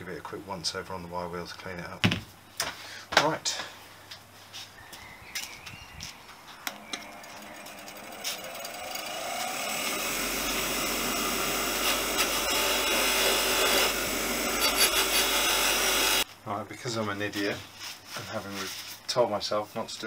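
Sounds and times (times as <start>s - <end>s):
bench grinder whine: 6.7s - 16.2s
wire wheel scraping metal: 6.9s - 16.2s.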